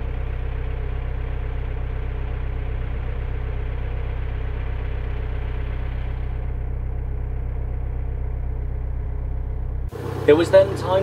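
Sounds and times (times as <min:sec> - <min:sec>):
boat diesel engine chugging: 0:00.0 - 0:11.0.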